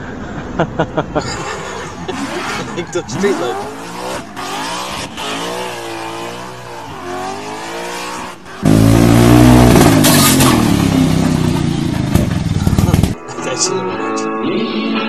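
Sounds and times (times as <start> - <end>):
car engine revving: 1.2 - 13.2.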